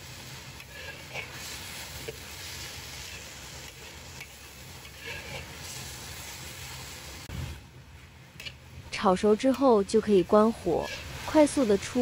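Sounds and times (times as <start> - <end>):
spatula scraping a wok: 0.0 - 6.9, 10.3 - 12.0
food sizzling in a wok: 0.0 - 12.0.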